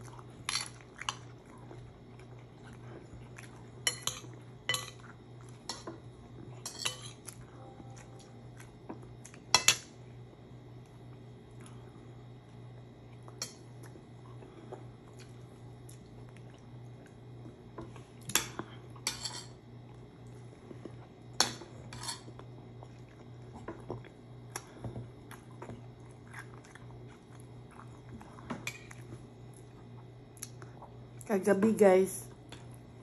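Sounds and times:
soft chewing: 0:00.0 - 0:31.3
low steady hum: 0:00.0 - 0:33.0
spoon and dishes clinking: 0:03.8 - 0:05.1, 0:06.6 - 0:08.3, 0:18.3 - 0:19.6, 0:21.4 - 0:22.3.

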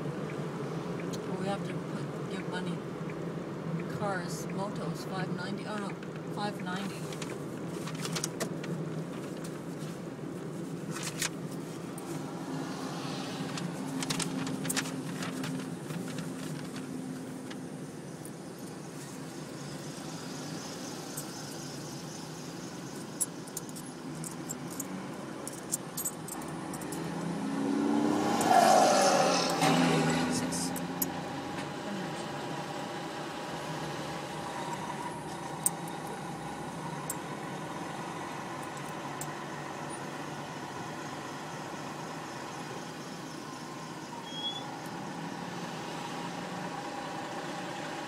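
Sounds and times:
car engine and road rumble: 0:00.0 - 0:48.0.

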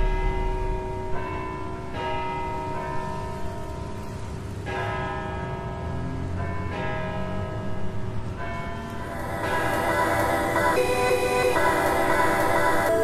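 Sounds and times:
low rumble: 0:00.0 - 0:01.9
bells ringing chords: 0:08.4 - 0:13.0.

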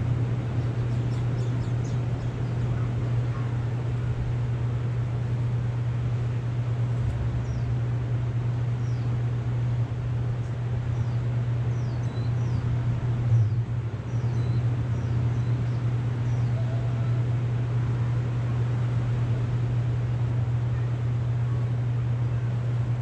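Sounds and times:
steady low rumble: 0:00.0 - 0:23.0
small birds chirping: 0:00.5 - 0:03.7, 0:07.4 - 0:07.8, 0:08.8 - 0:09.2, 0:10.4 - 0:17.0.

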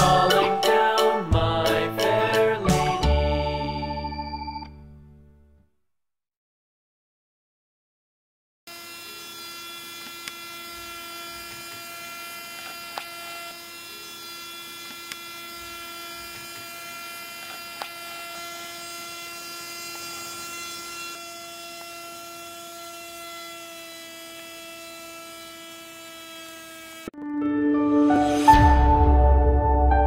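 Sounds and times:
electric motor whine: 0:08.7 - 0:27.1.

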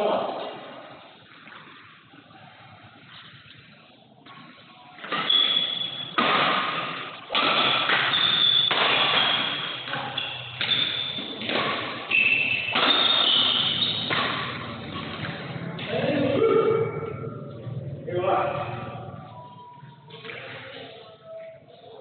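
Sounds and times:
rackets hitting shuttlecock: 0:05.0 - 0:16.1.

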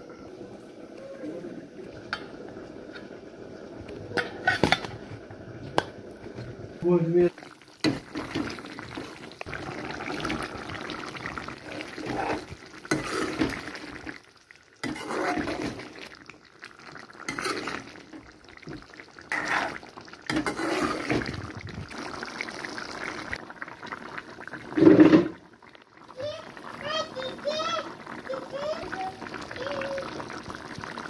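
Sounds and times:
spoon stirring in metal pot: 0:14.8 - 0:15.9, 0:17.2 - 0:18.0, 0:19.3 - 0:21.2.

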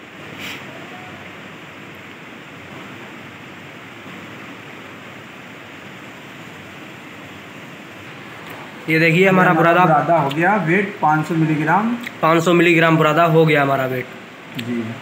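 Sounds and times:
room noise hiss: 0:00.0 - 0:15.0.

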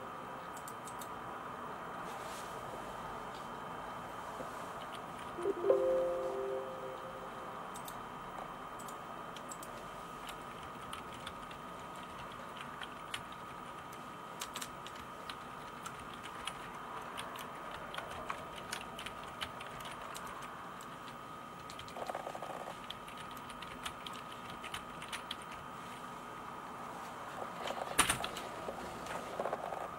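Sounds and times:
keyboard typing clicks: 0:08.8 - 0:13.5.

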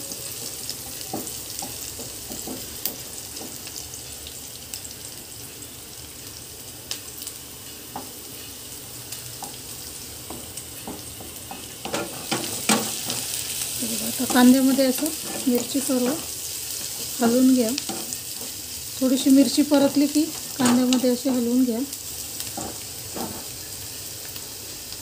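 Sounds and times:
onions sizzling in oil: 0:00.0 - 0:25.0
spatula scraping and tapping pan: 0:00.7 - 0:03.8, 0:09.4 - 0:18.6, 0:22.4 - 0:23.6.

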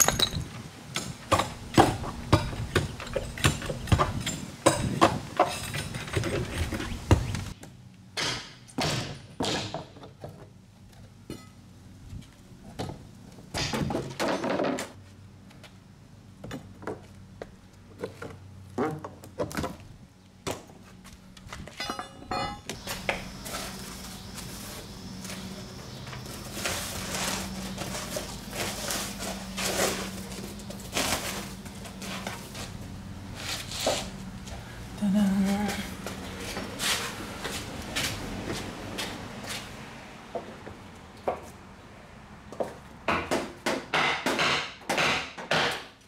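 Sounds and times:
hammer striking wood: 0:08.2 - 0:09.9, 0:43.1 - 0:45.9.

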